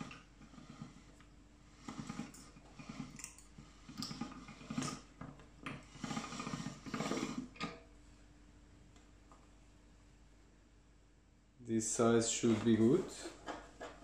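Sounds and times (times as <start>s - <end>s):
pasta machine rattling and clicking: 1.8s - 7.8s.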